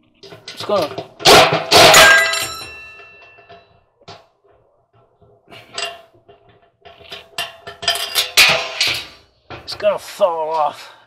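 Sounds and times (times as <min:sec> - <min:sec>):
loud metal clangs: 0:00.2 - 0:03.8, 0:05.6 - 0:09.9.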